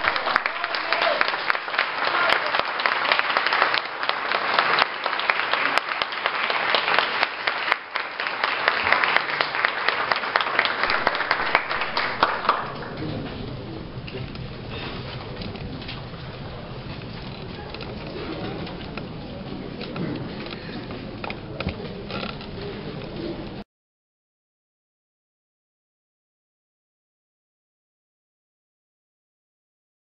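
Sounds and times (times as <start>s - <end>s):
audience applauding: 0.0s - 15.4s
murmur of voices: 8.8s - 23.6s.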